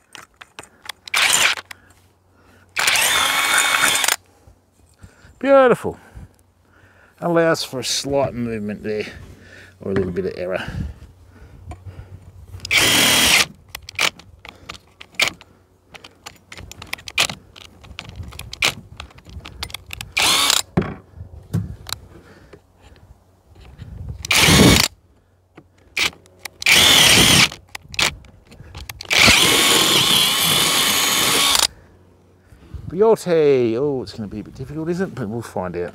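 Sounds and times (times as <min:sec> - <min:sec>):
handling clicks and knocks: 0:00.0 - 0:01.8, 0:13.6 - 0:21.0, 0:27.5 - 0:29.4
cordless drill drilling metal: 0:01.0 - 0:01.7, 0:02.8 - 0:04.2, 0:12.6 - 0:14.6, 0:20.1 - 0:20.6, 0:24.2 - 0:24.9, 0:26.0 - 0:28.1, 0:29.0 - 0:31.7.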